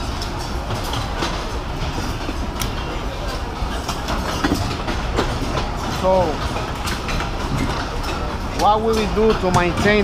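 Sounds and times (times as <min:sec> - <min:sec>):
murmur of workers' voices: 0:00.0 - 0:10.0
clicks and knocks from benches: 0:03.8 - 0:10.0.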